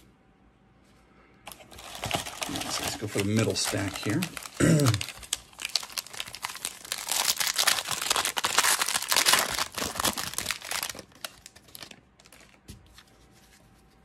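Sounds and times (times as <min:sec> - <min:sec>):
foil wrapper crinkling and tearing: 0:01.5 - 0:12.7
cards rustling and clicking: 0:01.5 - 0:13.0.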